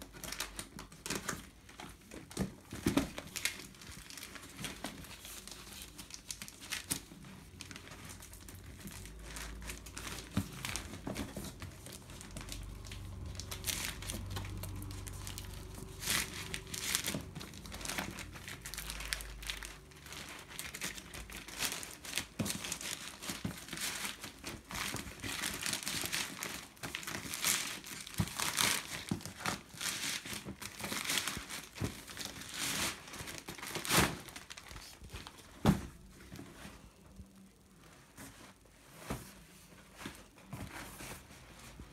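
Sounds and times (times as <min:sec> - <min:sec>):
plastic bag crinkling: 0:00.0 - 0:41.9
low rumble: 0:11.6 - 0:20.7.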